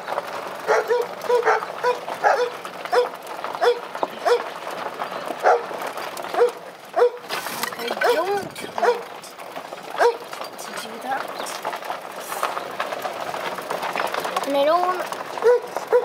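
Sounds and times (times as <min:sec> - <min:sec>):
animal calling: 0:15.4 - 0:16.0.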